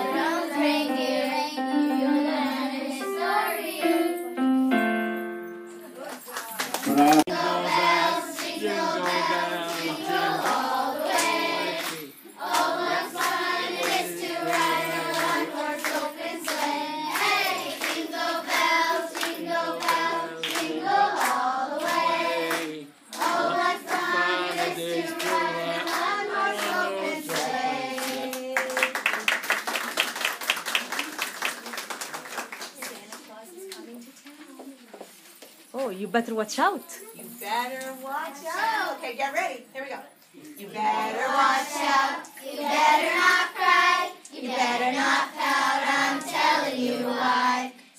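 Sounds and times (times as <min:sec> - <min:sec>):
children singing: 0:00.0 - 0:04.2, 0:06.9 - 0:28.6
hands clapping in time: 0:06.0 - 0:07.3, 0:25.2 - 0:33.3
applause: 0:06.0 - 0:07.4, 0:08.4 - 0:16.6, 0:19.2 - 0:24.1, 0:25.2 - 0:33.3.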